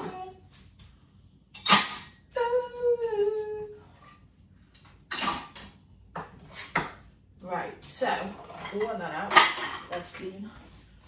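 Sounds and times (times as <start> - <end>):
dishes clattering: 1.6 - 2.2, 5.1 - 5.7, 8.5 - 10.2.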